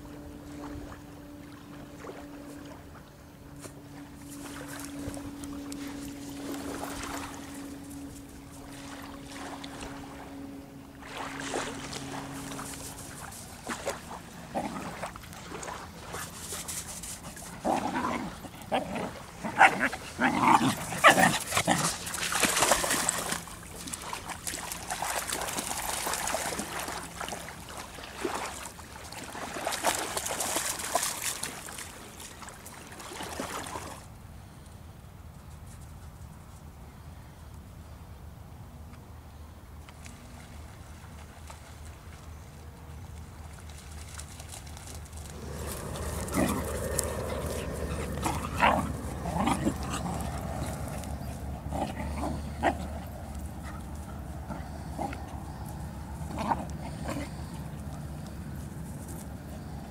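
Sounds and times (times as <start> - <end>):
dogs barking and yipping: 19.5 - 22.0, 45.3 - 57.6.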